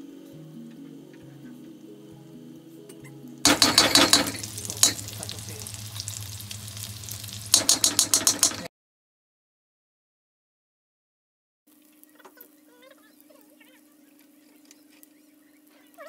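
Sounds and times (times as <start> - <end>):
faint background music: 0.0 - 8.6, 11.7 - 16.0
hot oil sizzling in a wok: 3.5 - 8.7
metal spoon stirring in wok: 3.5 - 8.7.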